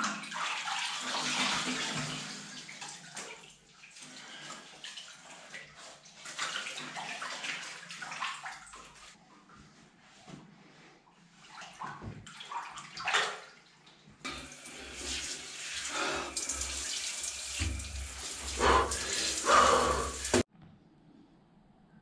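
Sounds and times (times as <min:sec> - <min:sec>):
water splashing in a bathtub: 0:00.0 - 0:09.8, 0:11.3 - 0:20.5
shower head spraying water: 0:14.3 - 0:20.5.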